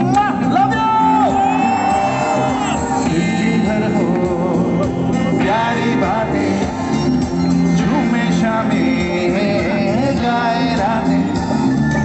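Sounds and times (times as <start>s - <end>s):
electric guitars: 0.0s - 12.0s
keyboards: 0.0s - 12.0s
person singing: 2.9s - 7.0s, 7.7s - 11.6s.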